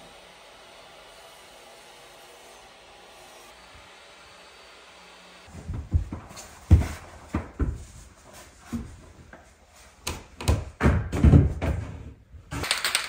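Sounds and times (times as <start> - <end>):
flooring planks knocking on steps: 5.5 - 8.0, 10.1 - 12.1
footsteps on wooden stairs: 5.5 - 12.0.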